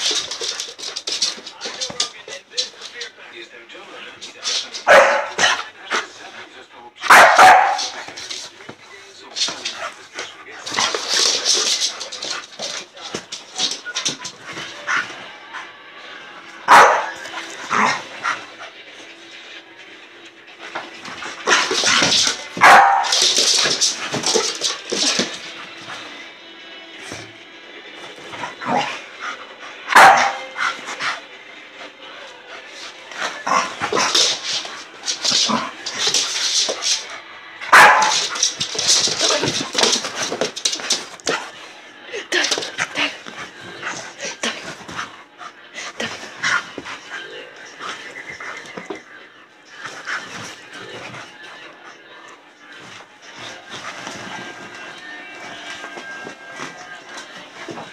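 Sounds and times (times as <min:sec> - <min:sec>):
scuffling: 0:00.0 - 0:03.2, 0:03.9 - 0:06.1, 0:07.1 - 0:15.7, 0:20.6 - 0:26.1, 0:32.8 - 0:45.2, 0:45.8 - 0:51.6, 0:52.7 - 0:57.9
dog barking and yipping: 0:04.8 - 0:05.6, 0:07.1 - 0:08.0, 0:16.7 - 0:17.2, 0:22.6 - 0:23.4, 0:29.9 - 0:30.5, 0:37.7 - 0:38.4.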